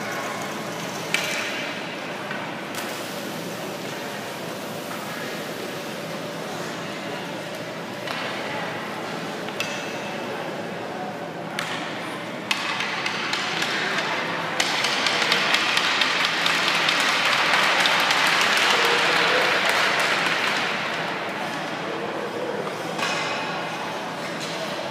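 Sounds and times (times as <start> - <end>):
crowd voices: 0.0 - 24.9
spectators applauding: 16.6 - 20.8.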